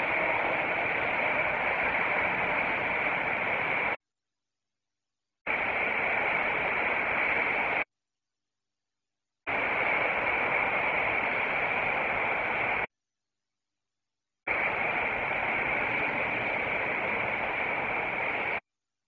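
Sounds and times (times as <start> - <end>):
hissing static noise: 0.0 - 4.0, 5.5 - 7.9, 9.5 - 12.9, 14.5 - 18.6.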